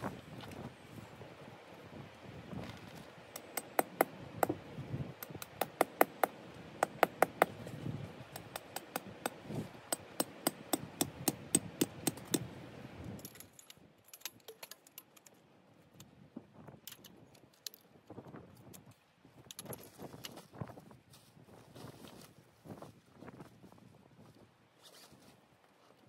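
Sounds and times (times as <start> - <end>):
hammer tapping metal tent peg: 3.4 - 4.6, 5.2 - 7.6, 8.4 - 12.4.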